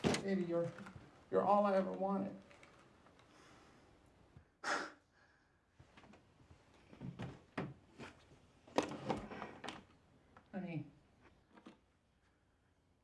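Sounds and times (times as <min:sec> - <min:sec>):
small movement sounds: 0:00.0 - 0:04.4, 0:11.1 - 0:12.4
faint breaths: 0:03.2 - 0:05.9.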